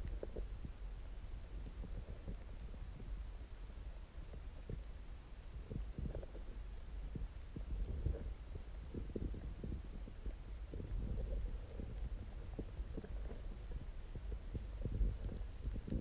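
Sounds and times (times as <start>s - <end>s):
soft underwater clicks: 0.0s - 0.8s
faint high whine: 0.0s - 16.0s
low underwater rumble: 5.6s - 16.0s.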